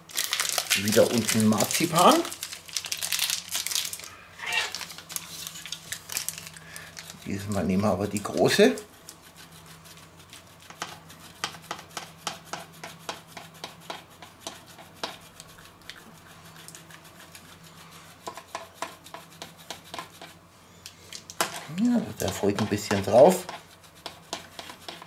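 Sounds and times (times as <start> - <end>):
grater scraping strokes: 7.1 - 20.5, 21.4 - 25.0.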